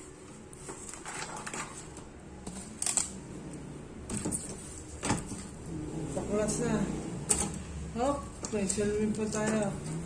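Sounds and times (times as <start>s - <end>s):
plastic sheets rustling and scraping: 0.0s - 3.3s.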